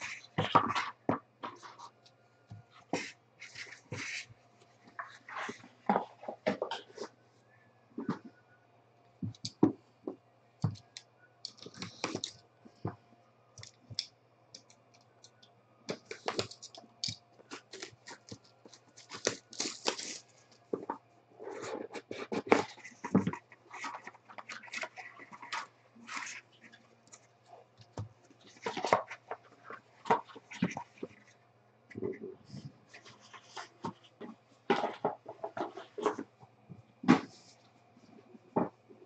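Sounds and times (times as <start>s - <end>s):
plastic wrap crackling and tearing: 17.5s - 20.4s.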